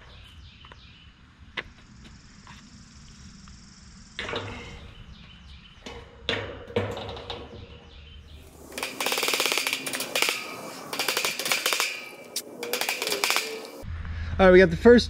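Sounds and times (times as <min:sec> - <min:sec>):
wire ringing: 0:08.4 - 0:13.8
hammer striking nails: 0:08.5 - 0:13.8.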